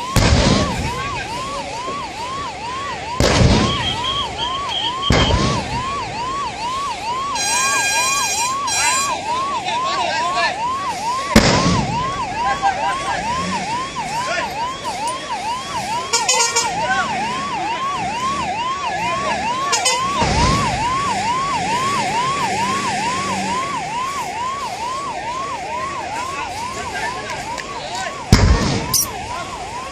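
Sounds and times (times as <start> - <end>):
siren yelping: 0.0 - 29.9
dull boom of fireball: 0.2 - 1.0, 3.2 - 6.0, 11.4 - 12.1, 28.3 - 29.0.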